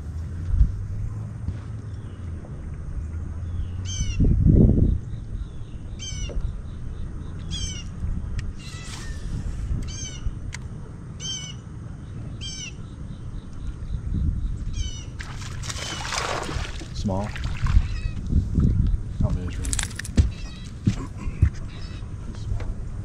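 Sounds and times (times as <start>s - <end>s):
steady low rumble: 0.0s - 23.0s
bird calling: 5.2s - 10.4s, 11.2s - 18.2s, 20.2s - 22.3s.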